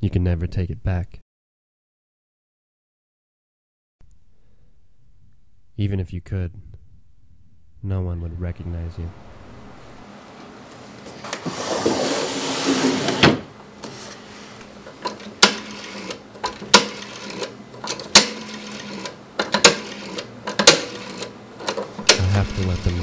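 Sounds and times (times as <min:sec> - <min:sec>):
rustling scrape: 0:10.8 - 0:13.2, 0:13.8 - 0:15.0
rotary telephone dial clicking: 0:15.0 - 0:22.9.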